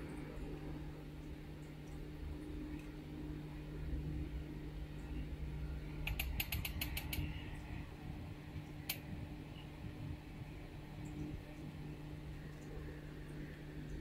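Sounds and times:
steady low hum: 0:00.0 - 0:14.0
small sharp clicks: 0:06.0 - 0:07.3, 0:08.8 - 0:09.0.

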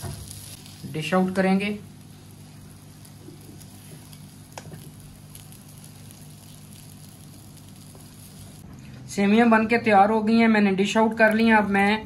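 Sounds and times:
faint sizzling in frying pan: 0:00.0 - 0:08.6.

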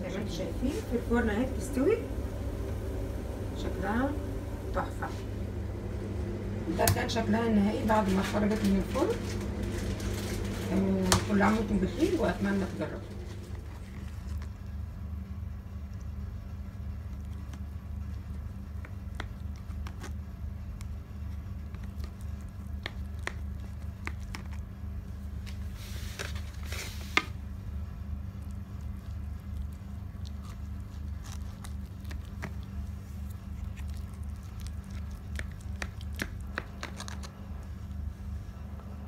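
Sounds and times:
low hum: 0:00.0 - 0:39.0
knife squishing through food: 0:16.6 - 0:38.6.

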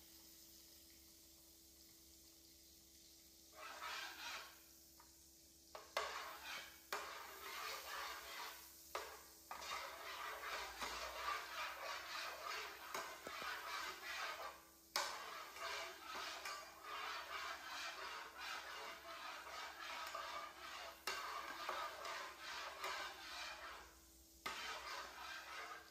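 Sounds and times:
metal spatula scraping a pan: 0:03.5 - 0:04.7, 0:05.7 - 0:25.9
spatula clacking against pan: 0:05.8 - 0:23.9, 0:24.5 - 0:25.9.

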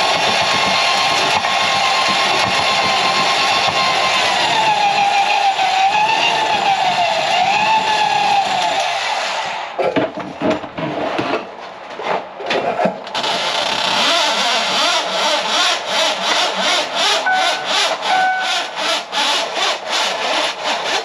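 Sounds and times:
cable scraping and slapping: 0:00.0 - 0:08.9, 0:09.8 - 0:21.0
drain-cleaning machine running: 0:00.0 - 0:09.1, 0:14.0 - 0:21.0
short squeals: 0:17.0 - 0:19.1.

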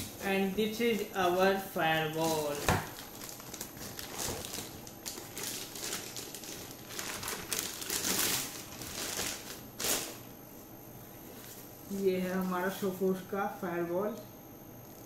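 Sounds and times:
plastic bag crinkling: 0:00.0 - 0:10.4.

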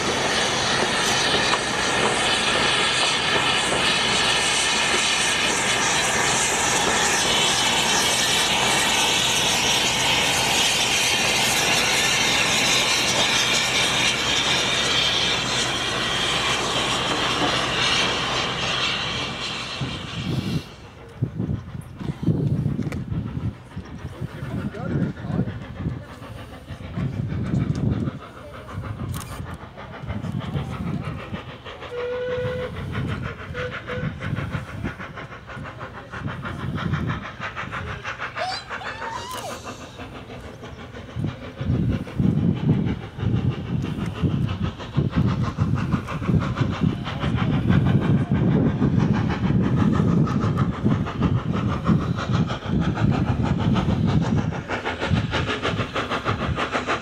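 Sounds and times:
steam locomotive exhaust chuffs: 0:00.0 - 0:57.0.

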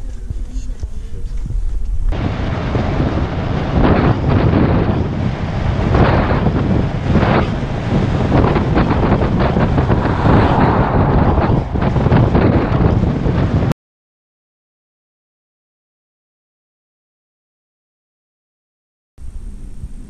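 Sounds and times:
wind buffeting microphone: 0:00.0 - 0:13.8.

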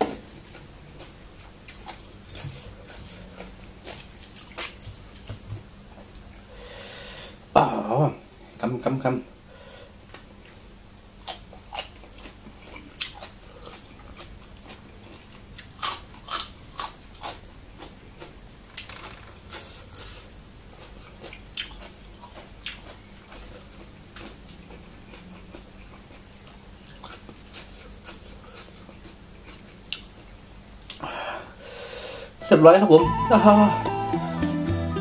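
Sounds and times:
man chewing: 0:00.0 - 0:06.9, 0:10.1 - 0:31.1
faint steady hum: 0:00.0 - 0:35.0.

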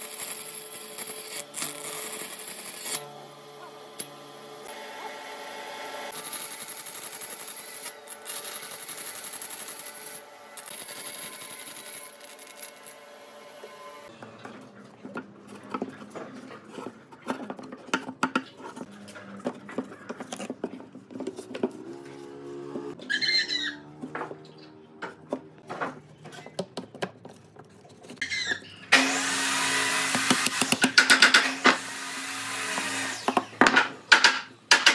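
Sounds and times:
bandsaw running: 0:00.0 - 0:14.1, 0:28.9 - 0:33.6
power tool whirring: 0:00.0 - 0:14.1, 0:28.9 - 0:33.7
wood squeaking in slots: 0:22.9 - 0:25.4, 0:27.6 - 0:28.9.

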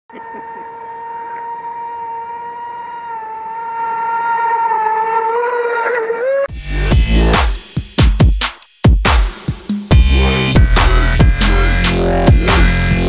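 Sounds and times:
boat motor high whine: 0:00.1 - 0:06.7.

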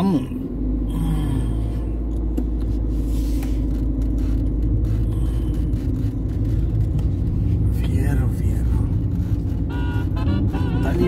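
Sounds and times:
car engine rumbling: 0:00.0 - 0:11.0.

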